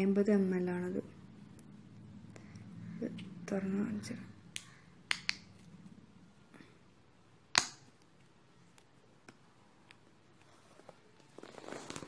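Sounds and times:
loud sharp plastic snap: 7.5s - 8.0s.

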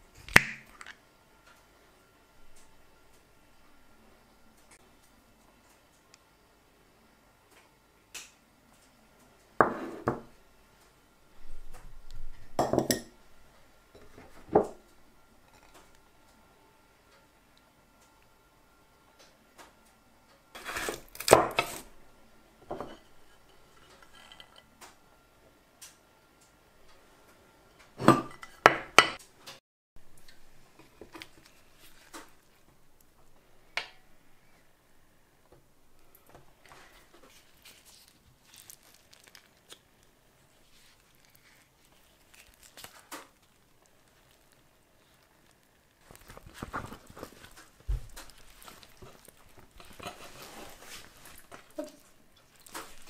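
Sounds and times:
food rustling: 30.1s - 32.8s, 36.0s - 53.0s.

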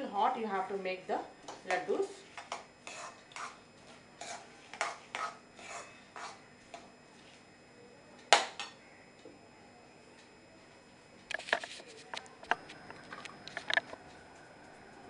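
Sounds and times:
spoon scraping metal pan: 2.5s - 3.6s, 4.2s - 6.4s.

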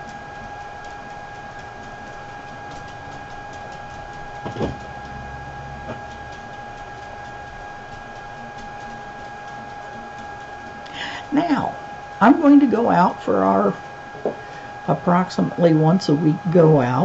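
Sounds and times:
high-pitched electrical whine: 0.0s - 17.0s.

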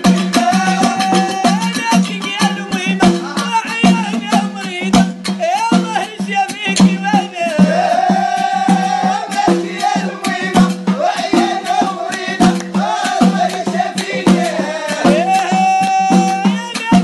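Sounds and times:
fast rattling percussion: 0.0s - 17.0s.

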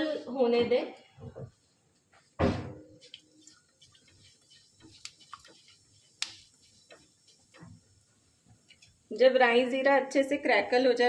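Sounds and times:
spatula stirring: 3.2s - 9.1s
seeds crackling in hot oil: 3.2s - 9.8s.

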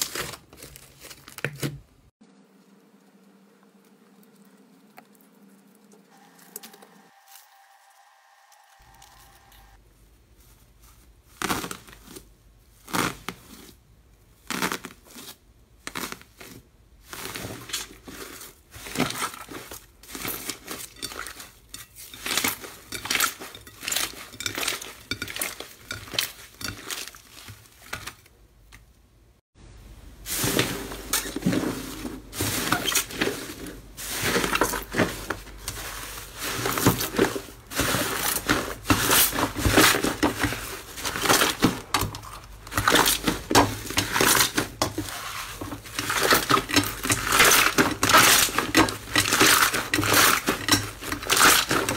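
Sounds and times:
foil crinkling: 0.0s - 1.9s, 30.3s - 51.9s
slime squishing: 14.4s - 28.8s.

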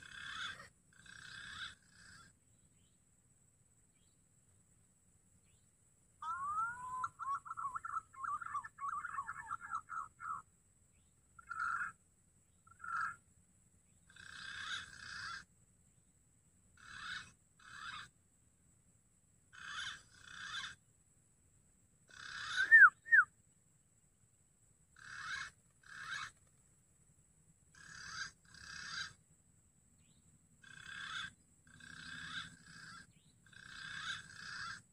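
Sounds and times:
pigeon calling: 0.0s - 2.3s, 6.2s - 10.4s, 11.4s - 12.0s, 14.1s - 15.5s, 16.8s - 18.1s, 19.6s - 20.8s, 22.1s - 23.3s, 25.0s - 26.4s, 27.8s - 29.2s, 30.6s - 34.8s.

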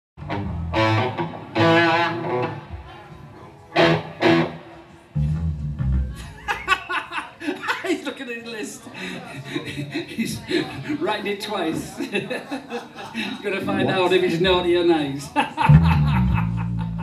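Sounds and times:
electric guitar notes: 0.2s - 6.4s, 15.7s - 17.0s.

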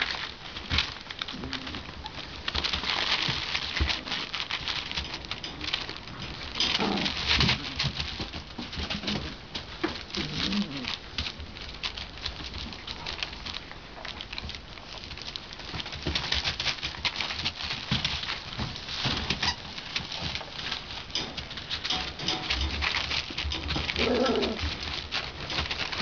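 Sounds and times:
newspaper rustling: 0.0s - 26.0s
puppy grunts: 6.6s - 7.8s, 10.2s - 11.0s, 23.8s - 24.8s.

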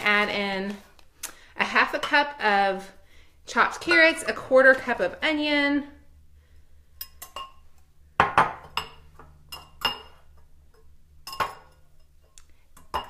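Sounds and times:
metal whisk clinking on glass bowls: 7.0s - 7.6s, 11.2s - 12.1s.

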